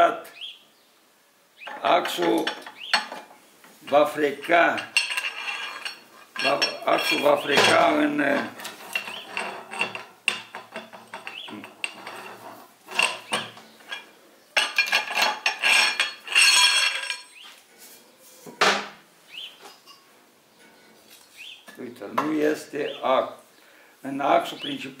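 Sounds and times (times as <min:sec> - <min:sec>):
metal parts clinking: 0:01.7 - 0:03.3, 0:03.9 - 0:17.4
ringing metal scrape: 0:04.7 - 0:17.4.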